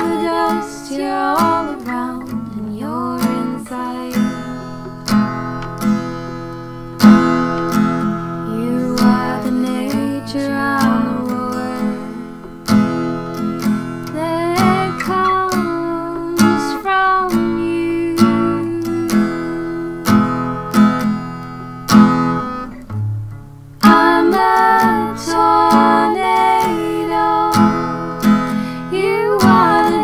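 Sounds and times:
person singing: 0:00.0 - 0:04.7, 0:08.5 - 0:12.3, 0:14.1 - 0:20.3, 0:23.8 - 0:27.9, 0:28.6 - 0:30.0
acoustic guitar strumming: 0:00.0 - 0:30.0.

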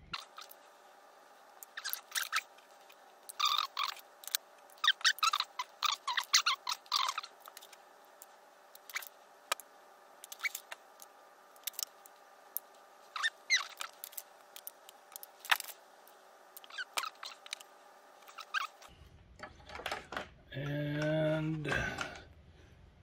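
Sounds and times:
squeaky chirps of stripping wire: 0:00.1 - 0:00.6, 0:01.6 - 0:02.5, 0:03.3 - 0:07.8, 0:08.8 - 0:09.1, 0:10.2 - 0:11.9, 0:13.1 - 0:15.8, 0:16.6 - 0:18.9.

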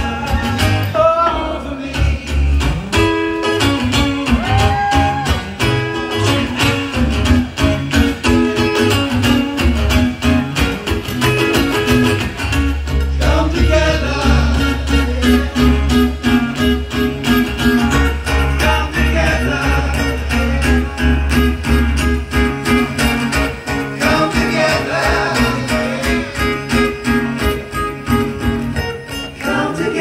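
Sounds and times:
people singing: 0:00.0 - 0:02.8, 0:13.0 - 0:15.5, 0:18.3 - 0:21.2, 0:23.7 - 0:27.4, 0:29.1 - 0:30.0
low bass line: 0:00.0 - 0:29.4
acoustic guitars: 0:00.0 - 0:30.0.

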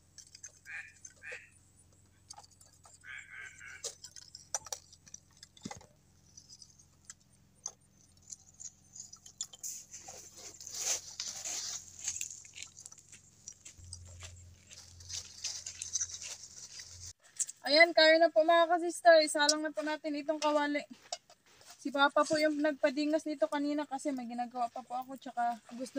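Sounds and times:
charcoal clicks and crunches: 0:02.0 - 0:17.6
plastic bag rustling: 0:09.6 - 0:17.2.

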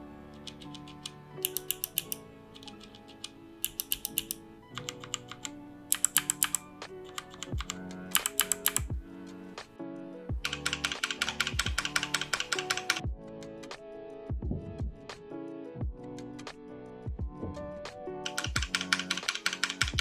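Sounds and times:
mechanical keyboard switches clacking: 0:00.3 - 0:08.9, 0:10.4 - 0:13.0, 0:18.2 - 0:20.0.

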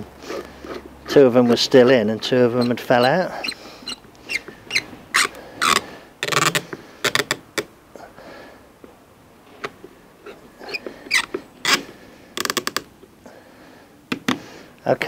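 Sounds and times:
screwdriver squeaking and scraping: 0:00.0 - 0:07.6, 0:09.6 - 0:12.8.

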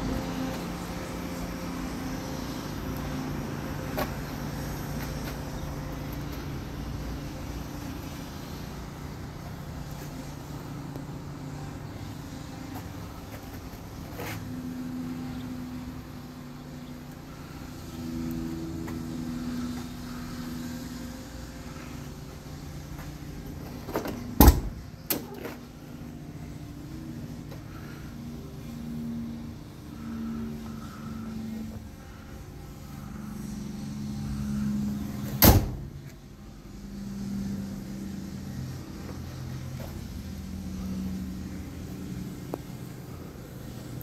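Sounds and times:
car door opening clunk: 0:23.9 - 0:25.4, 0:35.3 - 0:35.9.

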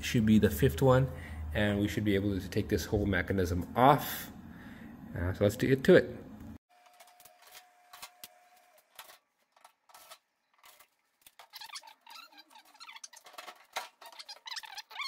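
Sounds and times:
wavering squeaks of parts rubbing: 0:10.0 - 0:15.0.

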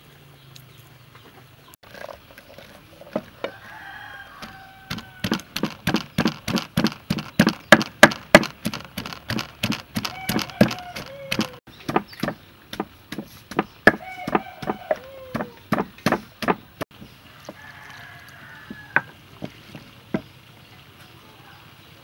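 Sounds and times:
wooden pestle pounding in mortar: 0:04.4 - 0:16.8.

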